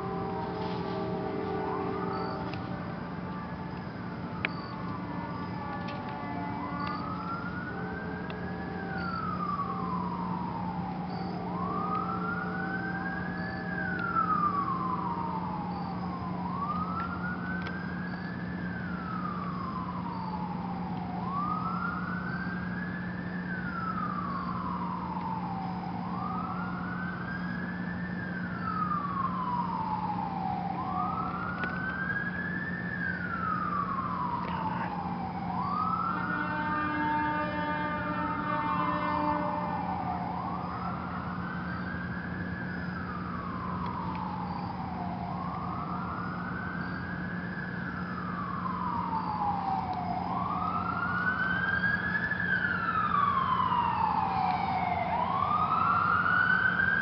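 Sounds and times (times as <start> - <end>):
siren wailing: 0.0 - 57.0
steady low hum: 0.0 - 57.0.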